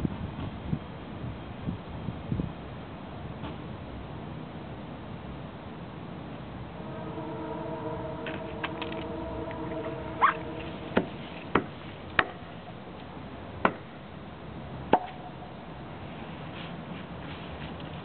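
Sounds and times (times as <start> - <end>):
held chord of steady tones: 6.6 - 12.1
short rising squeak: 6.7 - 11.6.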